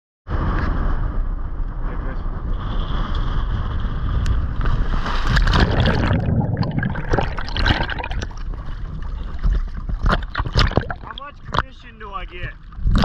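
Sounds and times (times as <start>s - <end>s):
seawater sloshing and gurgling: 2.6s - 13.0s.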